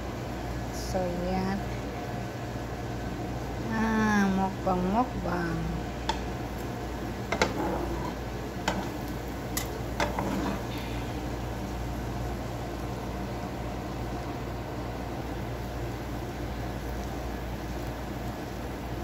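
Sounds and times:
steady hum: 0:00.0 - 0:19.0
pancake sizzling in butter: 0:05.6 - 0:14.5, 0:15.2 - 0:19.0
spatula tapping frying pan: 0:06.0 - 0:06.4, 0:07.3 - 0:07.6, 0:08.6 - 0:10.3.

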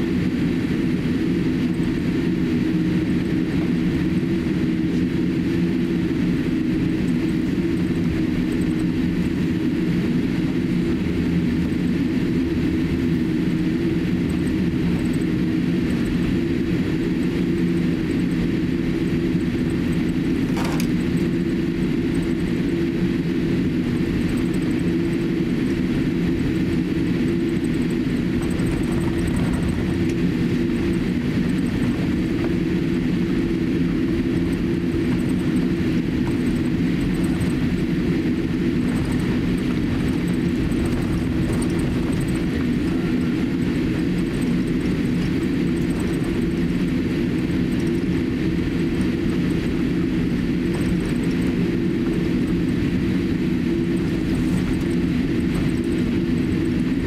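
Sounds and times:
aircraft cabin hum: 0:00.0 - 0:57.0
low droning tones: 0:01.6 - 0:57.0.

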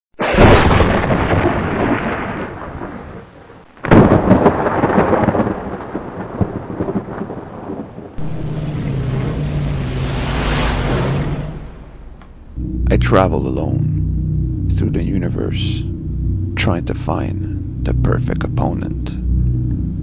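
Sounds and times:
thunderclaps rumbling: 0:00.2 - 0:20.0
low steady hum: 0:08.2 - 0:20.0.

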